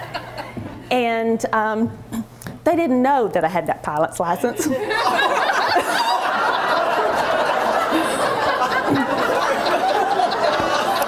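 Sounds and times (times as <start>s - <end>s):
large audience laughing: 0.0s - 0.6s, 4.6s - 11.0s.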